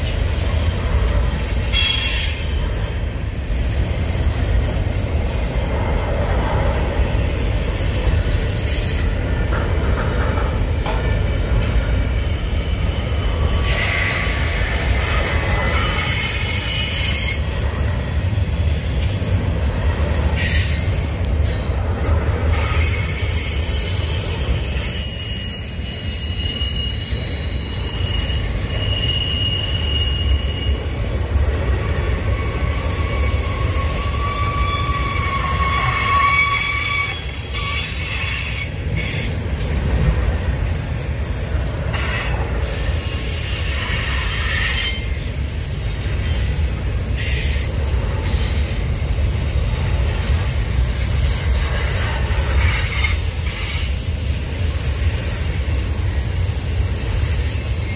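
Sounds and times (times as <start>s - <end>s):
freight train rumble: 0.0s - 57.9s
steel wheel squeal: 1.3s - 3.0s, 8.4s - 9.2s, 11.4s - 17.6s, 22.4s - 39.4s, 41.0s - 45.4s, 46.0s - 49.4s, 50.2s - 55.8s.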